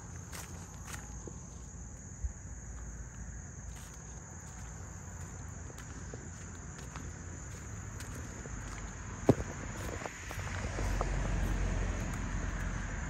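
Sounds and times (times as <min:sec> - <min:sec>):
footsteps on leafy dirt trail: 0:00.0 - 0:13.0.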